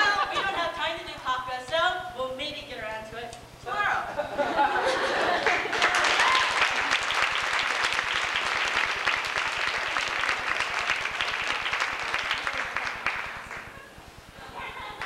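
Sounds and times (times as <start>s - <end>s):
audience applauding: 5.0s - 14.0s.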